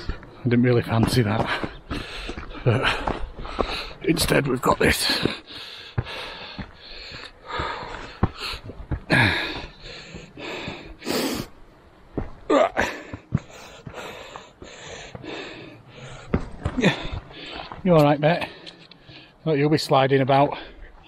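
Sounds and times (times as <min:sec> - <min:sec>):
footsteps scuffing: 0:00.0 - 0:05.4
heavy hard breathing: 0:01.4 - 0:04.0, 0:05.0 - 0:11.6, 0:12.5 - 0:19.4.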